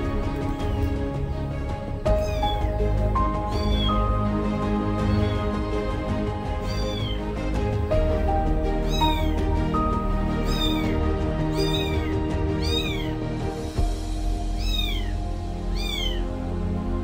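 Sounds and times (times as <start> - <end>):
kitten mewing: 2.1 - 4.1, 5.0 - 5.5, 6.6 - 7.2, 8.8 - 9.4, 10.4 - 13.2, 14.5 - 16.3.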